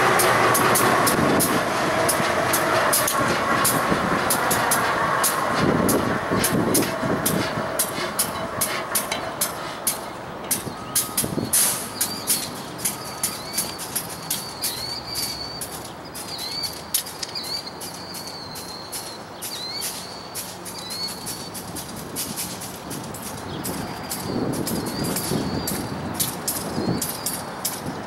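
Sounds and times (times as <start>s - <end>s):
rail cars clacking over track: 0.0s - 28.0s
small bird chirping: 11.9s - 21.6s.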